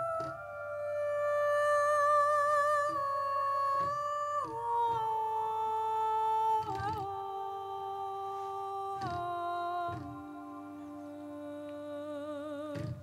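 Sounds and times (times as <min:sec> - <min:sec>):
woman humming long held notes: 0:00.0 - 0:13.0
faint knocks: 0:12.7 - 0:13.0.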